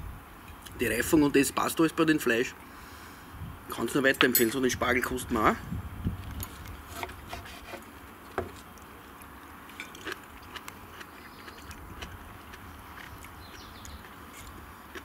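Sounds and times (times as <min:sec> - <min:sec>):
quiet chewing: 0:06.2 - 0:15.0.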